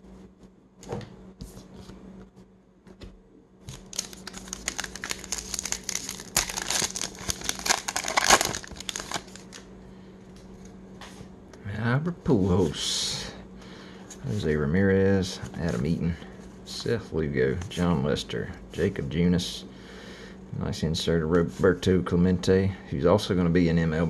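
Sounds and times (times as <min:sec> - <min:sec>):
foil wrapper tearing and crinkling: 0:03.7 - 0:09.6.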